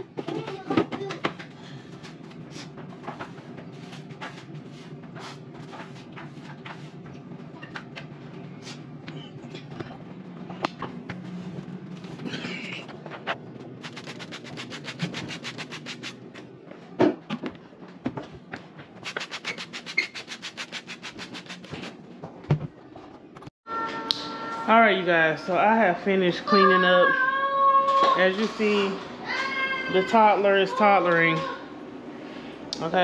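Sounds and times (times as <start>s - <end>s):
steady low hum: 0.0s - 23.5s
rhythmic rubbing strokes: 13.1s - 16.2s, 19.0s - 22.0s
spray bottle misting: 13.8s - 16.2s, 19.0s - 21.9s.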